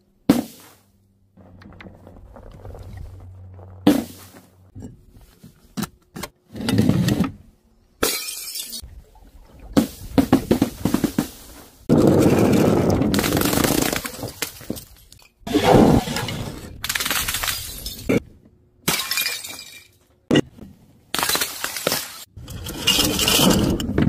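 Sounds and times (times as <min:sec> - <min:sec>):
glass bottles smashing on tiles: 0:18.9 - 0:20.0.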